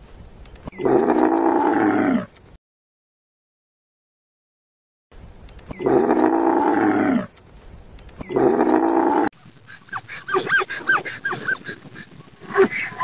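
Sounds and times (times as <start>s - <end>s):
camel bellowing: 5.8s - 7.3s, 8.3s - 13.0s.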